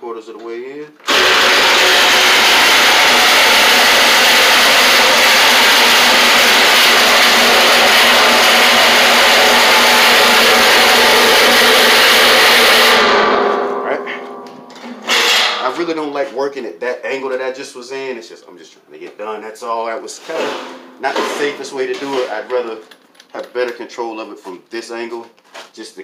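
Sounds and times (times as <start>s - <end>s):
reciprocating saw cutting metal: 1.0s - 13.6s, 14.9s - 15.9s, 20.3s - 22.6s.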